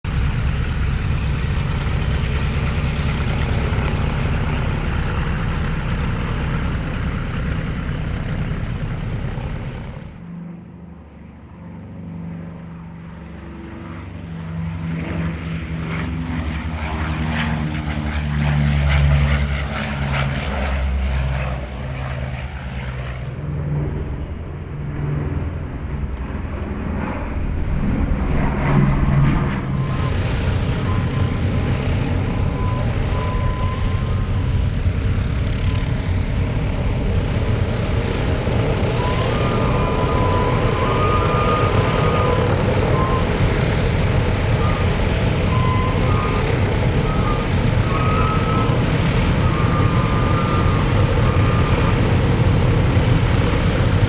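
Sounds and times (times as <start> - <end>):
radial engines running: 0.0 - 10.4, 22.8 - 54.0
propeller plane drone passing: 0.0 - 54.0.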